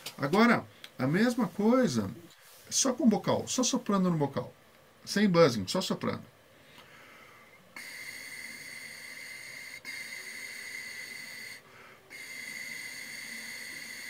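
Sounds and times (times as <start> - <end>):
breath in: 6.6 - 7.6, 11.6 - 12.2
air blown through trumpet mouthpiece: 7.8 - 14.0.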